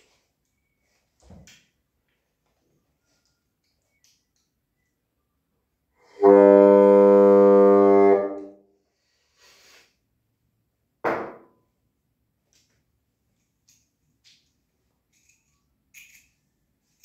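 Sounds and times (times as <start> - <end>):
sharp knock: 11.0 - 11.5.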